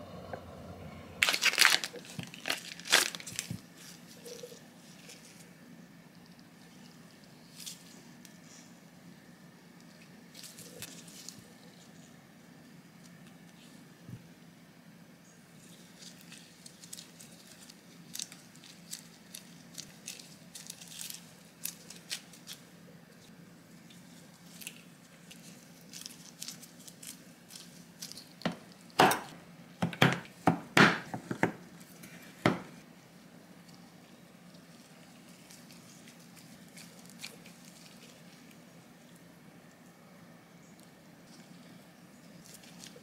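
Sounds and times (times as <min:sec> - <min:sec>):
hands squishing dough: 0:34.5 - 0:38.7.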